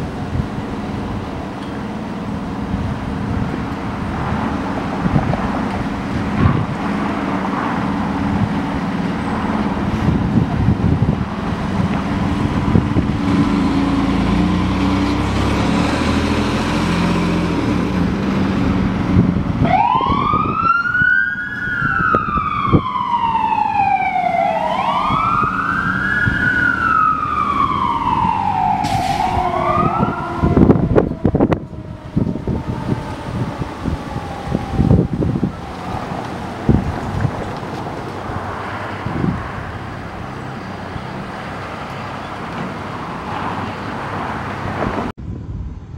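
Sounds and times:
fire engine diesel engine: 0.0 - 45.9
siren wailing: 19.6 - 36.8.

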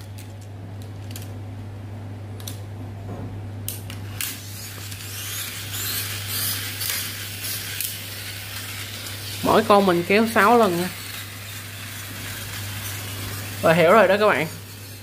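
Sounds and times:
steady low hum: 0.0 - 15.0
toy car gears whirring: 4.1 - 15.0.

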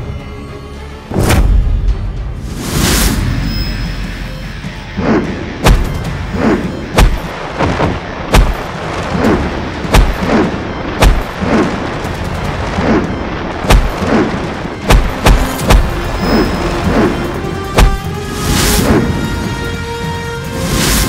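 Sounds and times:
sharp impact hits and blasts: 4.9 - 19.4.

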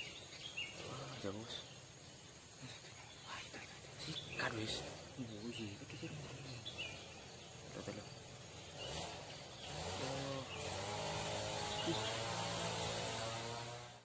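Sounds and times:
engine running: 4.0 - 14.0.

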